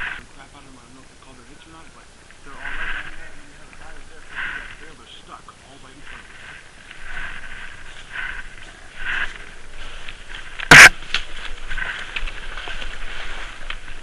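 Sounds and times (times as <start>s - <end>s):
leaves and gear rustling: 0.0s - 14.0s
loud sharp crack: 10.6s - 11.3s.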